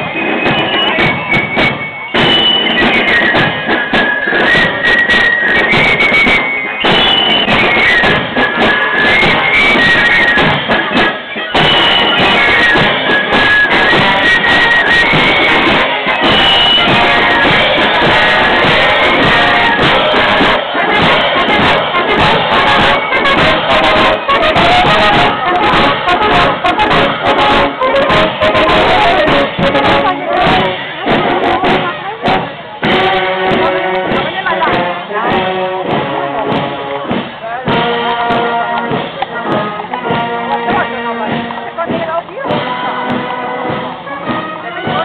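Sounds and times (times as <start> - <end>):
brass instruments: 0.0 - 45.0
fifes and flutes melody: 0.0 - 45.0
snare and bass drum strokes: 0.0 - 45.0.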